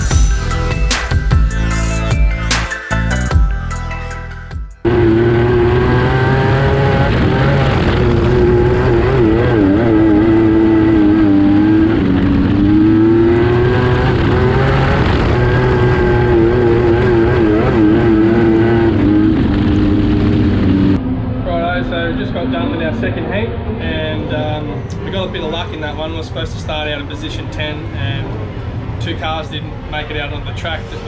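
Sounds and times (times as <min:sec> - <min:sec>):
race car engine running hard: 0:04.8 - 0:21.4.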